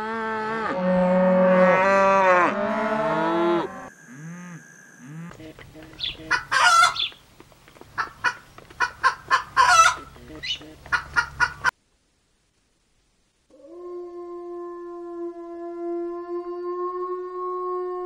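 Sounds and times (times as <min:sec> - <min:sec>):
cow mooing: 0:00.0 - 0:06.4
chickens clucking: 0:05.3 - 0:11.8.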